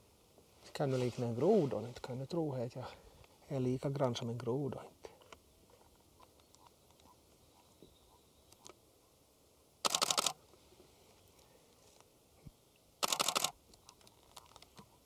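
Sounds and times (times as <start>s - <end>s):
camera shutter burst clicks: 9.8s - 10.4s, 13.0s - 13.6s.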